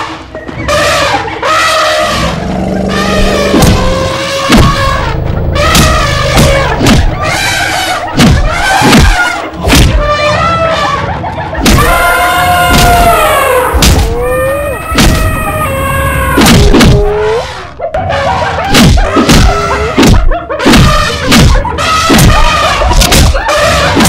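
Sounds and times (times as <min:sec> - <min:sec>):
heavy thuds: 0:03.1 - 0:10.1
cartoon animal cries: 0:11.7 - 0:18.6, 0:19.2 - 0:20.0.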